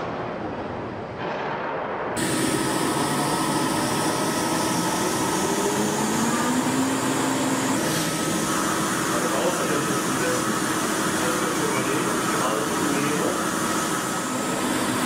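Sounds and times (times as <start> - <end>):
faint machinery hum: 0.0 - 15.0
slow rising tone: 2.2 - 9.2
water churning in a tank: 2.2 - 15.0.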